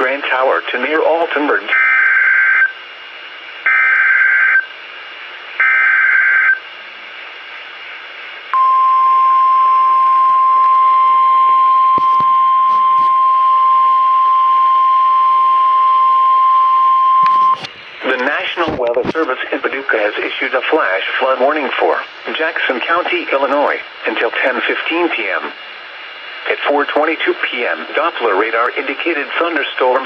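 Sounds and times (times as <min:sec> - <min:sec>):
steady warning alarm tone: 0:01.7 - 0:02.8, 0:03.6 - 0:04.8, 0:05.6 - 0:06.6, 0:08.6 - 0:17.7.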